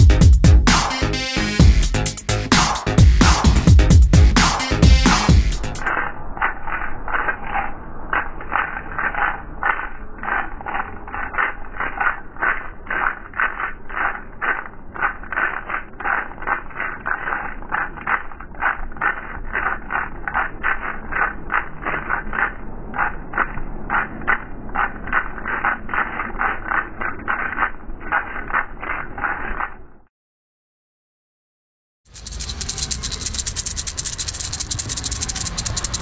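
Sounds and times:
electronic music: 0:00.0 - 0:06.1
slowed maracas rattle: 0:00.0 - 0:29.7, 0:32.0 - 0:36.0.

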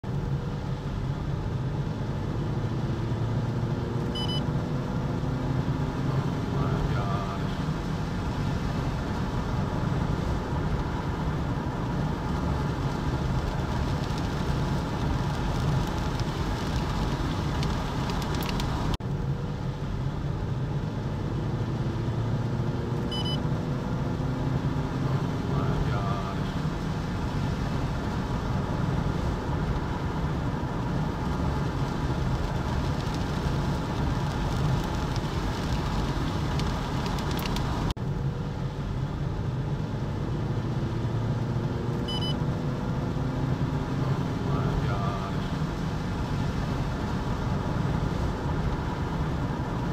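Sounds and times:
car road and engine rumble: 0:00.0 - 0:49.9.

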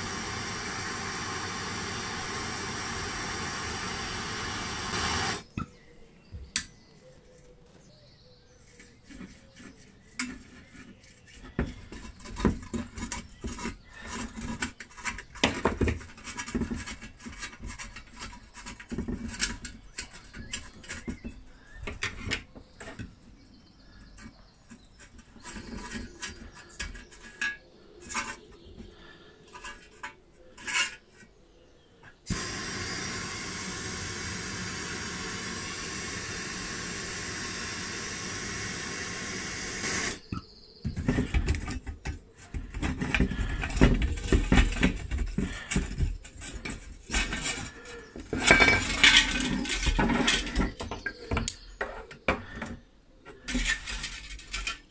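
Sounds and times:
gas torch hissing: 0:00.0 - 0:05.5, 0:32.3 - 0:40.3
pliers clanking and scraping metal: 0:29.5 - 0:31.3, 0:42.7 - 0:52.0.

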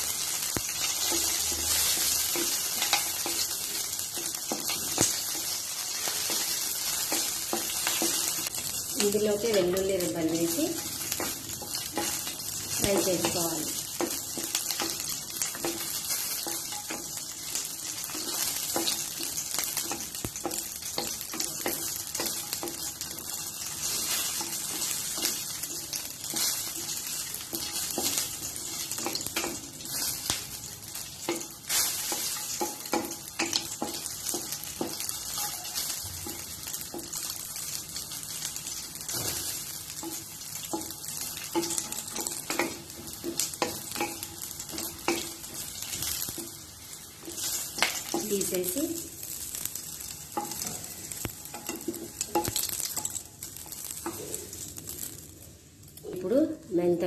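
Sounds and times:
spatula scraping and tapping pan: 0:00.0 - 0:55.2
food sizzling in hot oil: 0:00.0 - 0:57.0.

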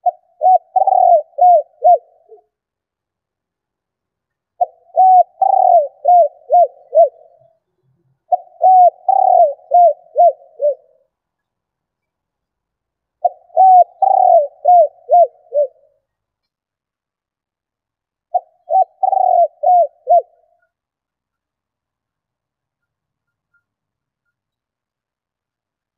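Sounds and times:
dove cooing: 0:00.0 - 0:02.5, 0:04.6 - 0:07.6, 0:08.3 - 0:11.0, 0:13.2 - 0:16.0, 0:18.3 - 0:20.8.

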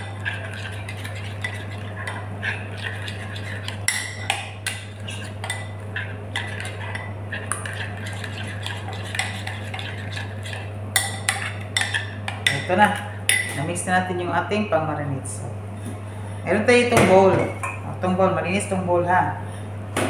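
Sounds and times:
metal spoon stirring marinade: 0:00.0 - 0:12.7
spoon scraping glass bowl: 0:00.0 - 0:12.7.

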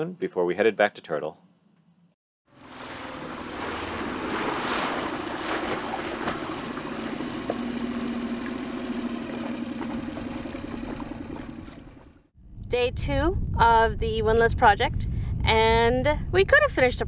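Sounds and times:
water wash: 0:02.5 - 0:12.2
outboard motor running: 0:02.5 - 0:12.3
wind noise: 0:12.4 - 0:17.0.

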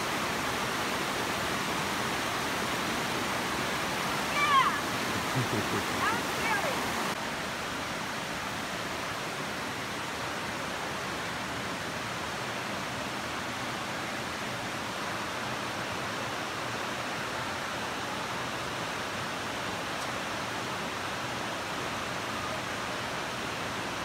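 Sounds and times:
creek rushing over rocks: 0:00.0 - 0:24.0.

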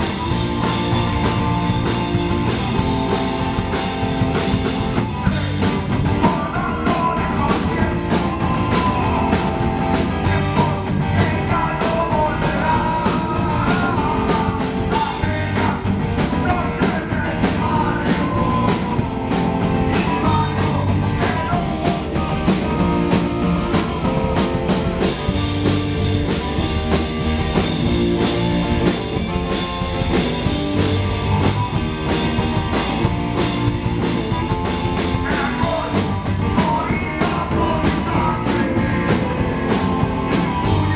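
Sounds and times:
bass guitar: 0:00.0 - 0:40.9
drum kit beat: 0:00.0 - 0:40.9
electric guitar: 0:00.0 - 0:40.9
person singing: 0:04.8 - 0:19.1, 0:19.9 - 0:23.8, 0:34.9 - 0:40.0.

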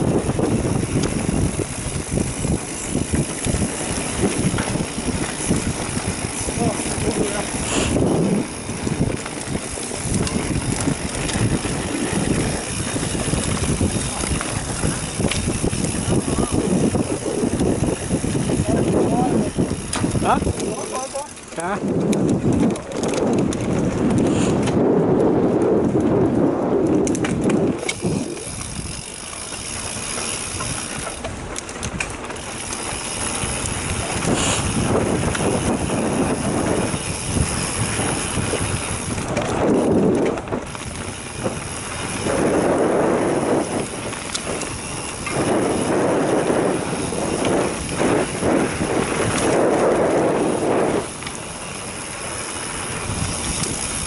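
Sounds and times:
bike clicks and rattles: 0:00.0 - 0:54.0
bike tyres rolling over dirt: 0:00.0 - 0:54.0
wind rushing over microphone: 0:00.0 - 0:54.0.

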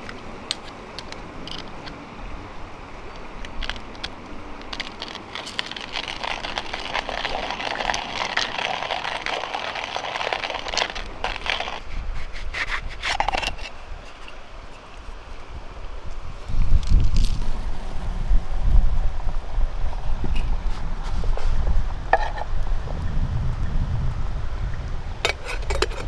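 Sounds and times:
metal clicks and scrapes: 0:00.0 - 0:02.0, 0:03.1 - 0:15.1, 0:25.2 - 0:26.0
coffee grinder crushing beans: 0:03.5 - 0:12.0.

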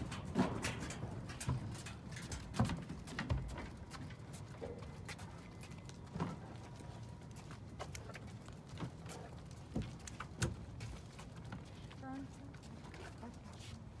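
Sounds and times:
clunks and knocks: 0:00.0 - 0:04.8
wheeled cart rolling on concrete: 0:00.0 - 0:14.0
footsteps on concrete: 0:01.3 - 0:14.0.

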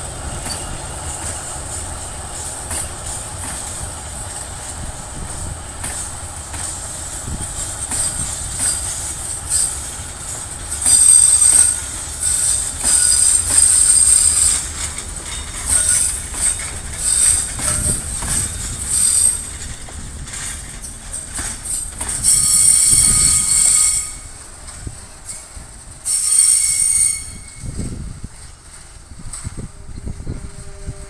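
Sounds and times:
diesel locomotive rumble: 0:00.0 - 0:31.0
wagons squealing: 0:22.2 - 0:24.3.

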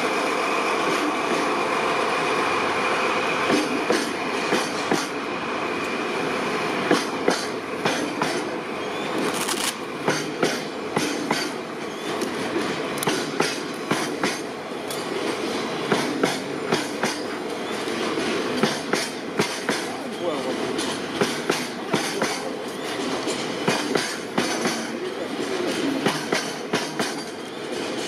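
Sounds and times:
train wheels rumbling on rails: 0:00.0 - 0:28.0
wheels clacking over rail joints: 0:06.9 - 0:28.0.

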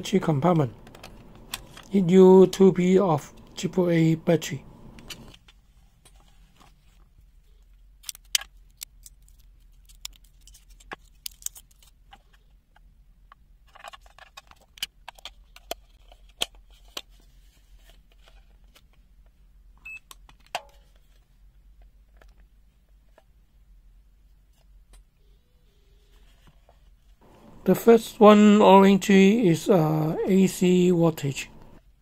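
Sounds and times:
plastic and metal clicks: 0:08.0 - 0:17.1.

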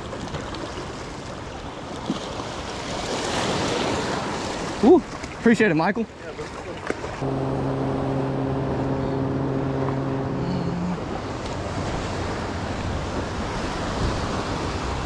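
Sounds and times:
waves washing against rocks: 0:00.0 - 0:05.4
brief higher horn note: 0:07.2 - 0:11.6
deep horn blast: 0:07.2 - 0:13.3.

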